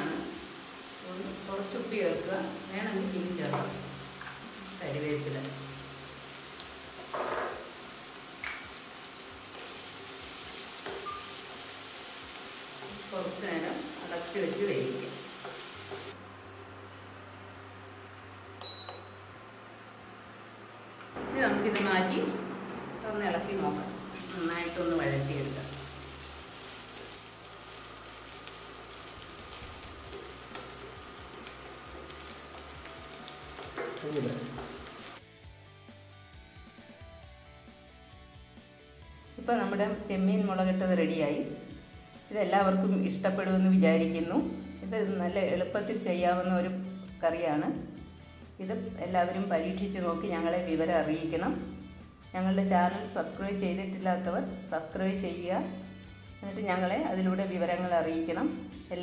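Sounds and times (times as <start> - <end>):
food sizzling in a pan: 0.0 - 35.2.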